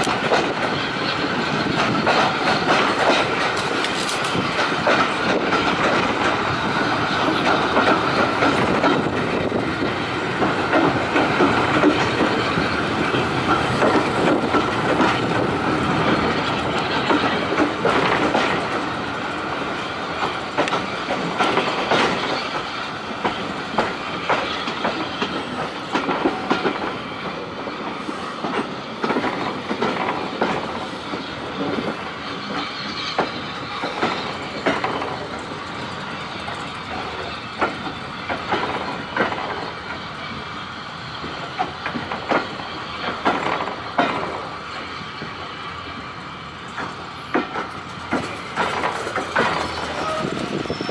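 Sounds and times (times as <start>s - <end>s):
wind rush at window: 0.0s - 32.6s, 41.2s - 50.9s
train rumble: 0.0s - 50.9s
train wheels clattering over rail joints: 0.0s - 50.9s.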